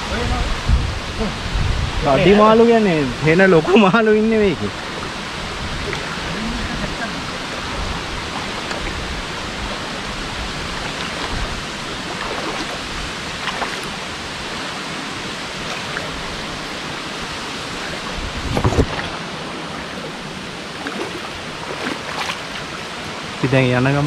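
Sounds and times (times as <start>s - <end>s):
waterfall rushing: 0.0s - 24.0s.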